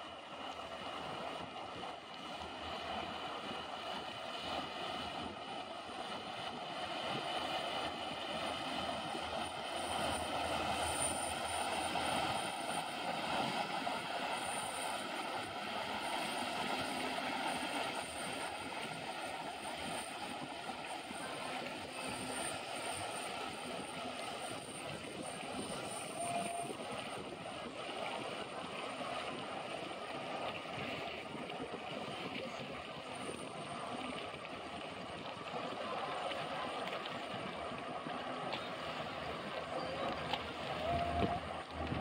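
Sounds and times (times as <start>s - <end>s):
boat engine droning: 0.0s - 42.0s
rush of bow wave: 39.7s - 42.0s.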